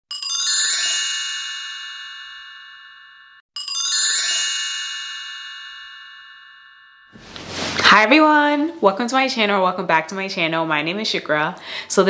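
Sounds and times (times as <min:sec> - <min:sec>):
bright chime ringing: 0:00.1 - 0:07.5.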